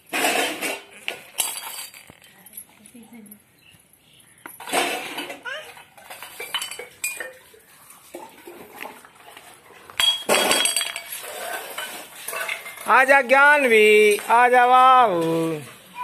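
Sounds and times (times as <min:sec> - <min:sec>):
tumbler clattering on concrete floor: 0:00.0 - 0:02.4, 0:04.4 - 0:13.2
steel tumbler clinking: 0:04.5 - 0:08.5, 0:10.0 - 0:14.4.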